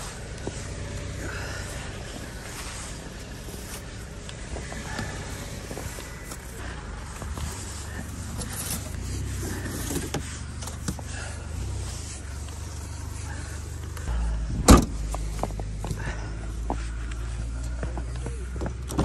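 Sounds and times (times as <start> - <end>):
vehicle engine rumbling: 0.0 - 19.0
loud thump: 14.6 - 15.0.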